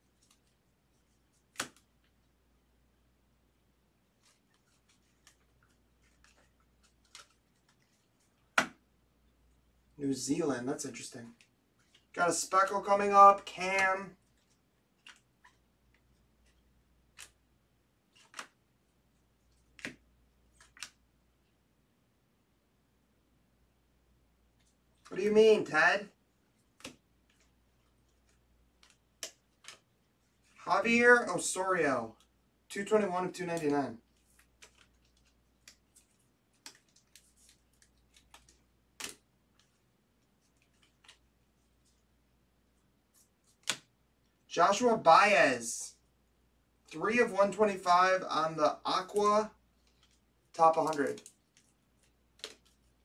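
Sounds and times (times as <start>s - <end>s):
trading cards snapping: 1.5s - 1.9s, 18.2s - 18.6s, 19.7s - 20.0s, 36.6s - 39.2s, 43.5s - 43.9s, 52.3s - 52.8s
trading cards clicking and tapping: 49.9s - 51.7s, 52.4s - 52.9s.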